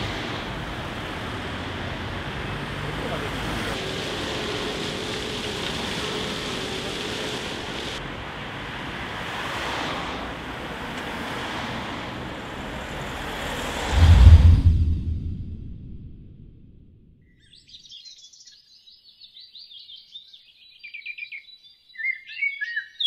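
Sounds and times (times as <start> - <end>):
cars passing: 0.0 - 16.5
deep low boom: 13.8 - 17.0.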